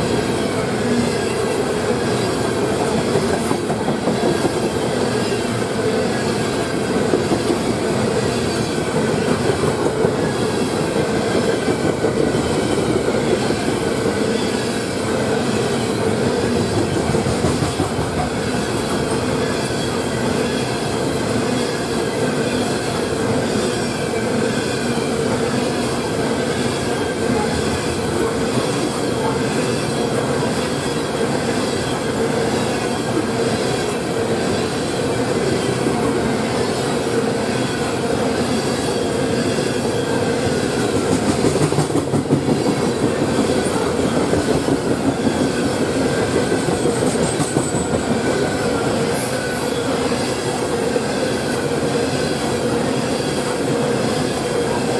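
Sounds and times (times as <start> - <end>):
freight train rolling past: 0.0 - 54.9.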